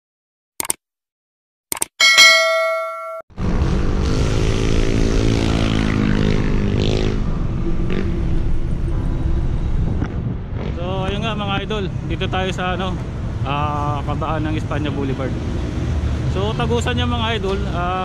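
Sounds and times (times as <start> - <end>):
notification bell ding: 2.0 - 3.2
road and traffic noise: 3.4 - 18.0.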